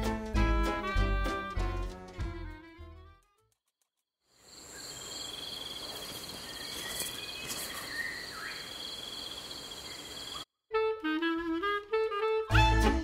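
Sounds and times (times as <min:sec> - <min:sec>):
insects droning: 0:04.3 - 0:10.4
faint bird chirps: 0:04.5 - 0:10.4.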